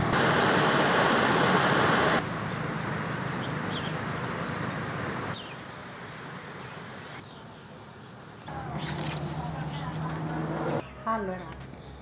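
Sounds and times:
water rushing over weir: 0:00.0 - 0:07.2
shallow creek flowing: 0:00.1 - 0:07.2.

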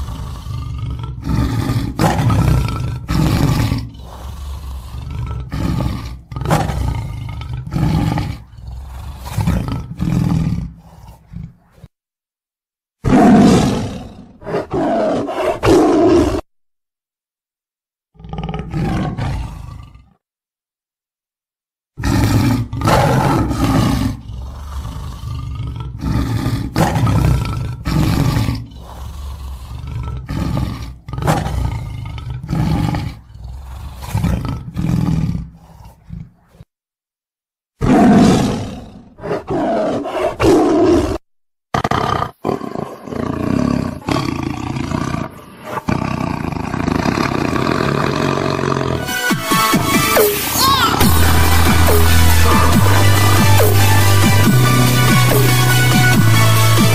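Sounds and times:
tiger roaring and growling: 0:00.0 - 0:11.9, 0:13.0 - 0:16.5, 0:18.1 - 0:20.2, 0:22.0 - 0:36.7, 0:37.8 - 0:56.9.

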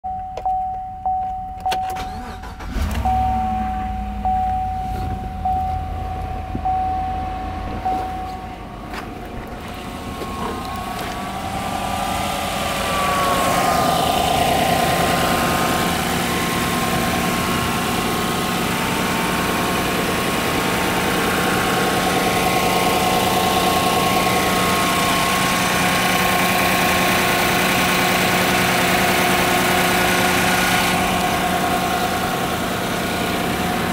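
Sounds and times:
dashboard warning chime: 0:00.0 - 0:15.1
truck engine starting and idling: 0:00.2 - 0:33.9.

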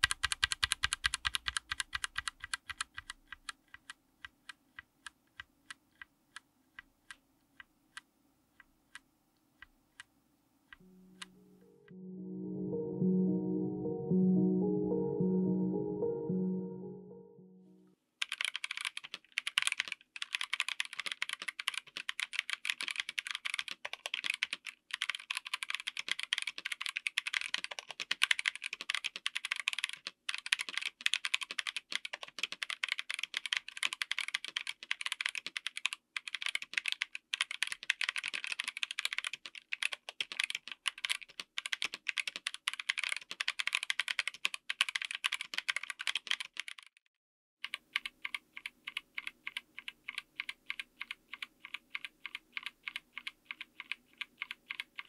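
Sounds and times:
fast mechanical keyboard typing: 0:00.0 - 0:06.4, 0:18.2 - 0:47.0, 0:47.6 - 0:55.0.

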